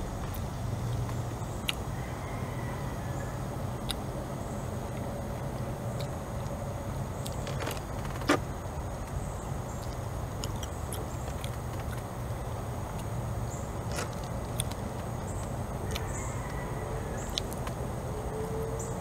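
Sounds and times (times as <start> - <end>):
distant motor hum: 0.0 - 19.0.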